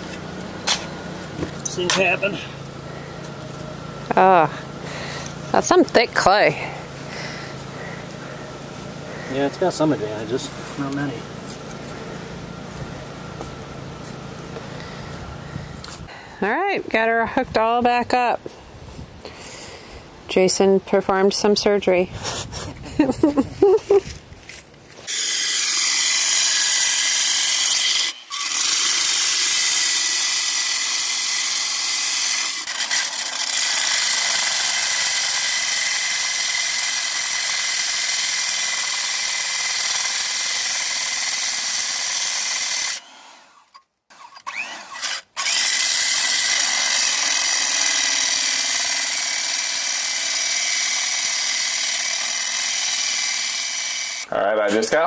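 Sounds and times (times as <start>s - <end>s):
core drill grinding concrete: 0.0s - 12.8s, 25.0s - 55.0s.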